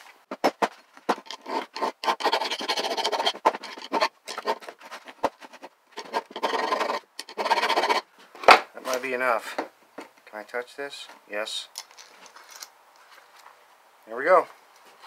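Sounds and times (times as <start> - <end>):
hand file rasping on steel: 1.1 - 4.8, 6.0 - 8.0.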